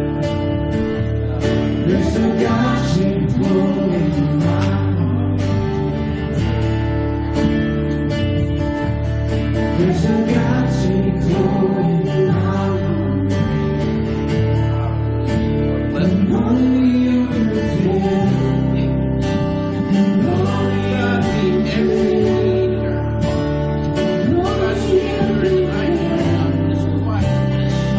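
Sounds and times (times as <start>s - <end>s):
worship band playing: 0.0s - 27.9s
person singing: 1.3s - 6.0s, 9.5s - 13.8s, 14.4s - 27.9s.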